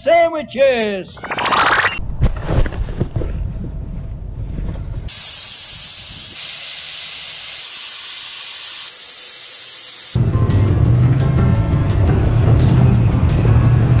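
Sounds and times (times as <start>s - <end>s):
low rumble in vehicle cab: 2.8s - 5.1s
air hissing from tyre valve: 5.1s - 10.2s.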